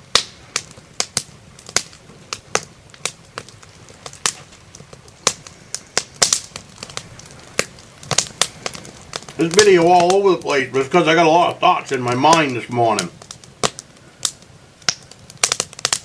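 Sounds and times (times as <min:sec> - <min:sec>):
wood fire crackling: 0:00.0 - 0:16.0.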